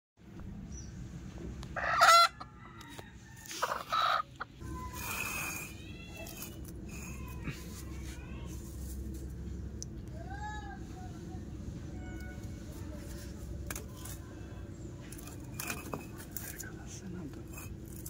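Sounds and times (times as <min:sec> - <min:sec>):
chickens calling: 0:01.7 - 0:05.6.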